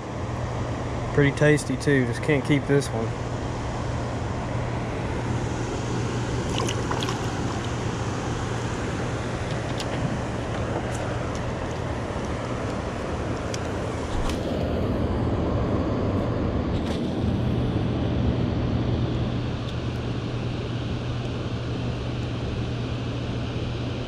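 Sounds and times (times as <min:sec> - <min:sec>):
low hum: 0:00.0 - 0:24.0.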